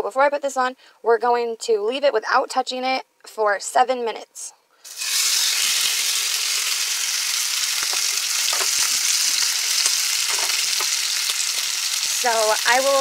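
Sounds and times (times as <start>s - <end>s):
steak sizzling in a pan: 4.9s - 13.0s.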